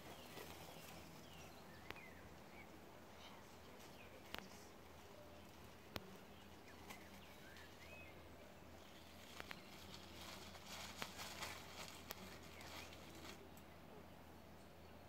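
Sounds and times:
low steady hum: 0.0s - 15.0s
light crackling: 8.8s - 13.8s.

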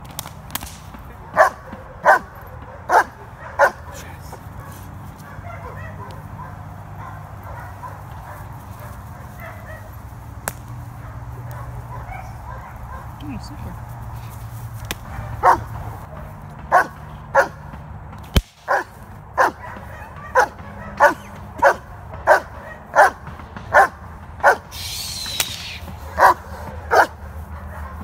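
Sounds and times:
dog barking sharply: 1.4s - 10.0s, 11.0s - 13.2s, 15.0s - 15.7s, 16.7s - 17.6s, 18.7s - 24.6s, 26.0s - 28.0s.

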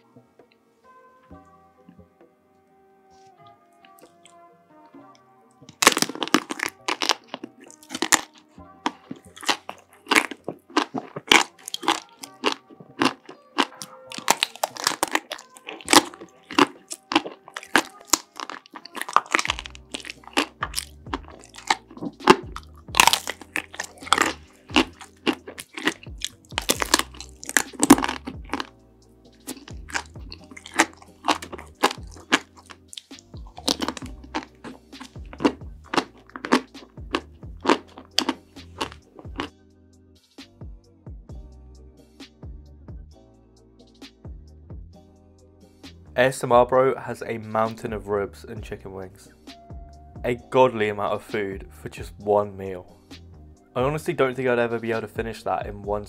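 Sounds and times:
background music: 0.0s - 56.0s
crunching ice cream bars: 5.7s - 39.5s
low bass beat: 19.5s - 25.1s, 26.0s - 30.6s, 33.2s - 39.4s, 48.4s - 50.6s, 51.5s - 54.1s, 55.1s - 56.0s.

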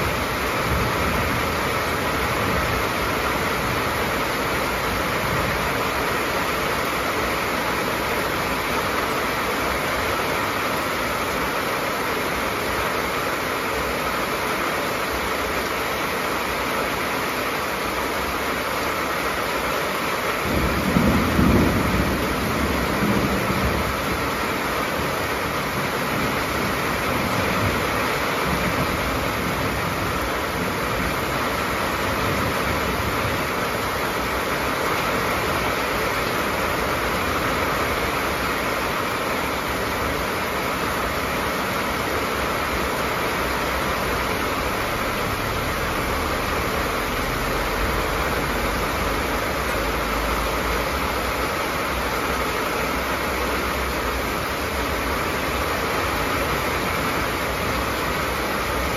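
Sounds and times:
rain on a metal roof: 0.0s - 58.9s
low rumble of thunder: 20.4s - 24.3s.

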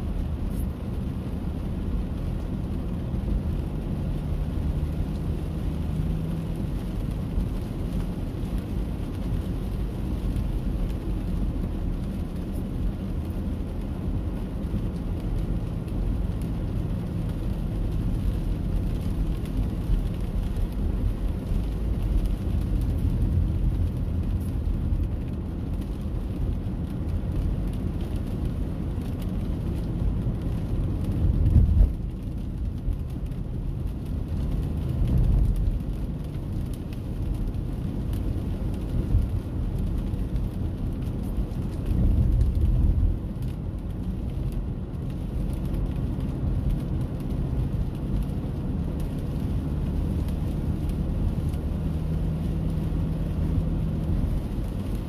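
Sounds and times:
faint hiss of rain: 0.0s - 55.0s
low outdoor rumble: 0.0s - 55.0s.

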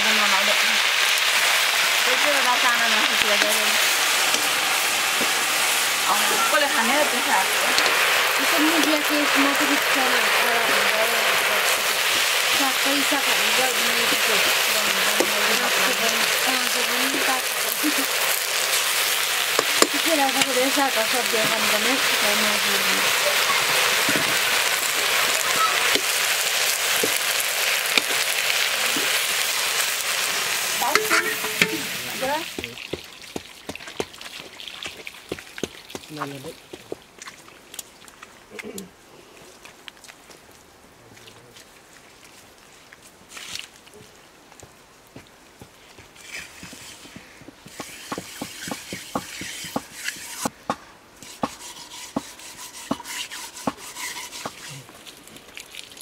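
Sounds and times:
greens sizzling in a wok: 0.0s - 36.7s, 46.2s - 50.6s, 51.2s - 56.0s
metal lid scraping on wok: 30.5s - 32.3s, 47.8s - 50.5s, 51.2s - 54.7s
metal ladle clicking on pan: 30.9s - 31.8s.

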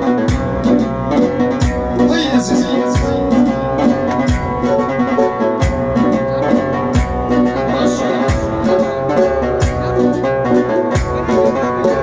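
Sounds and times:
electronic keyboard music: 0.0s - 12.0s.

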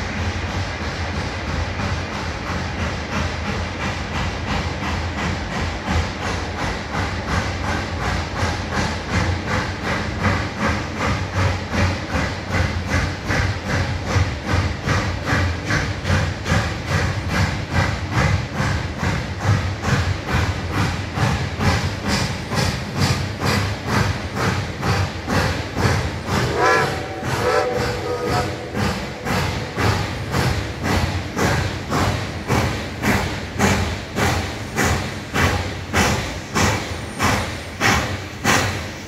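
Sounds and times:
steam locomotive exhaust chuffing: 0.0s - 39.0s
steam whistle blast: 26.4s - 28.8s.

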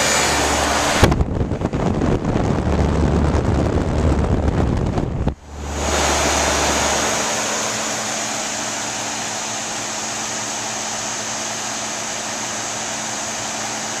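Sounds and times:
low hum: 0.0s - 11.0s
fan air rushing: 0.0s - 14.0s.

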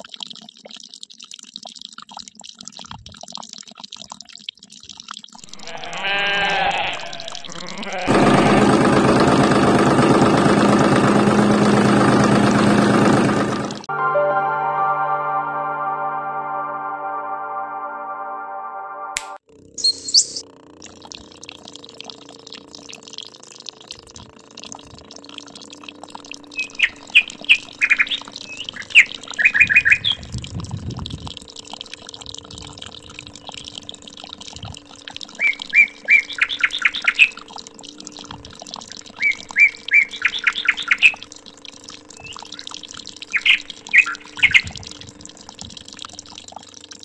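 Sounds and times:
water trickling: 0.0s - 8.1s, 20.4s - 47.0s
water pump motor hum: 5.4s - 13.9s, 20.4s - 47.0s
birds chirping: 26.6s - 30.2s, 35.4s - 37.4s, 39.2s - 41.2s, 42.2s - 44.9s.

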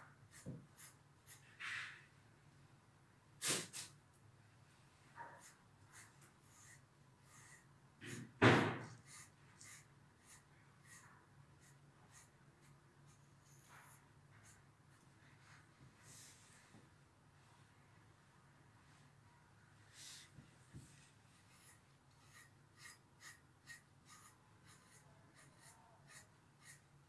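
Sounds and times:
brush scratching through dog fur: 21.4s - 26.8s.

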